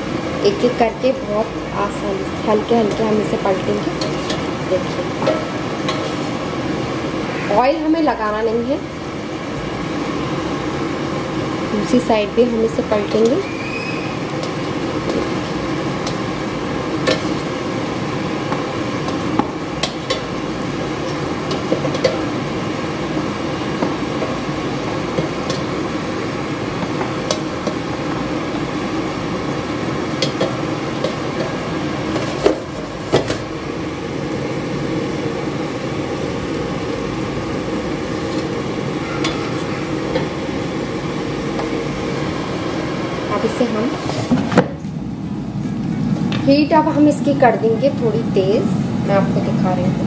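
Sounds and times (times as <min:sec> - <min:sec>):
air fryer whirring hum: 0:00.0 - 0:50.0
spatula tapping metal basket: 0:18.5 - 0:20.3.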